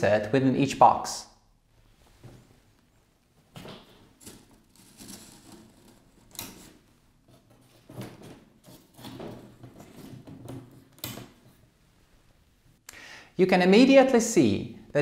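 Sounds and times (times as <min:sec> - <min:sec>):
cable and cardboard rustling: 0:03.4 - 0:11.7.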